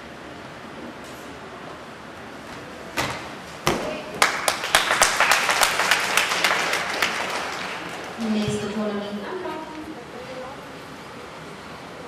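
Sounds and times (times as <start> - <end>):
gymnast landing on mat: 2.5 - 4.1
spectators clapping: 4.1 - 8.7.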